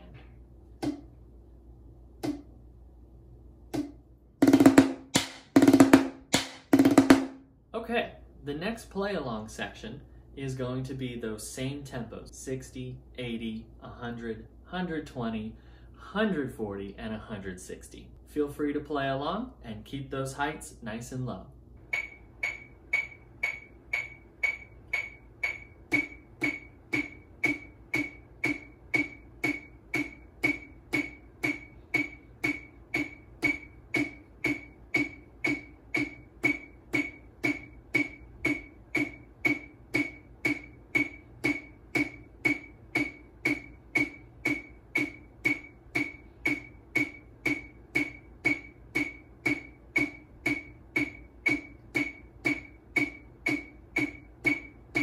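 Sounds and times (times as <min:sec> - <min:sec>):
metronome clicking: 0:21.8 - 0:55.0.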